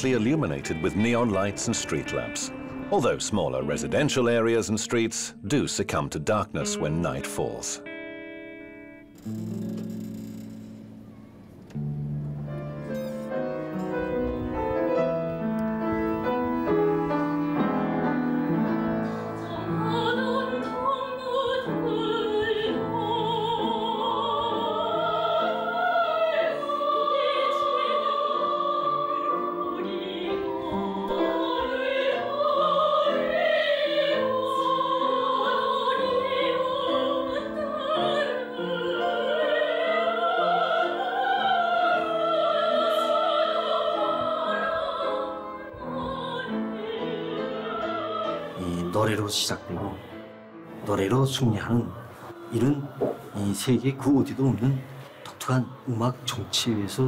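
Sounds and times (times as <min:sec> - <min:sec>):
piano: 0:00.0 - 0:05.5, 0:06.5 - 0:57.0
woman singing with vibrato: 0:19.2 - 0:48.9, 0:52.2 - 0:53.6.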